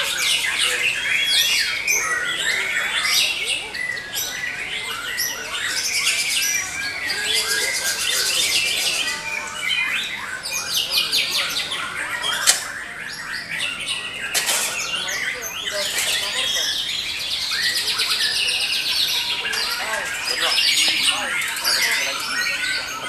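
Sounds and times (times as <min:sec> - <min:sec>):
birds singing: 0:00.0 - 0:23.0
sharp click: 0:12.4 - 0:12.7.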